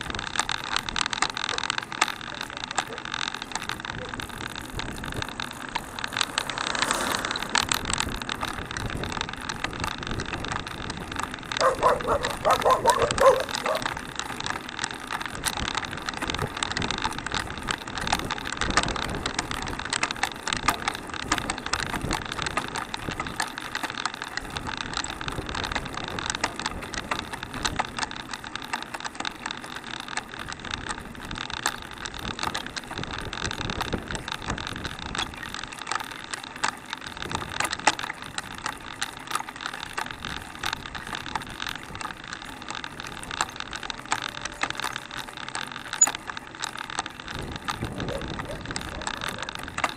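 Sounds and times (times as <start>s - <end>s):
chain and frame rattling: 0.0s - 14.5s, 40.9s - 49.9s
tyres hissing on asphalt: 5.4s - 8.3s.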